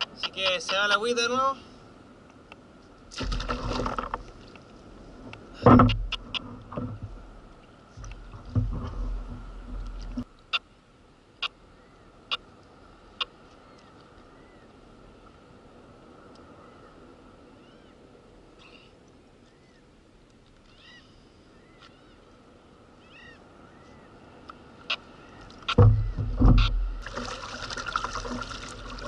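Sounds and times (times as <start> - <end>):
water splashing: 3.1 - 4.8, 25.5 - 29.0.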